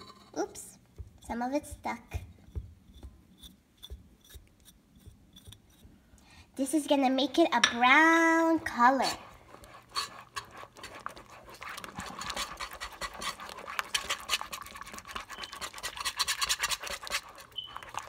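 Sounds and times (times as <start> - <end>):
whisk beating sauce in pan: 7.9 - 18.0.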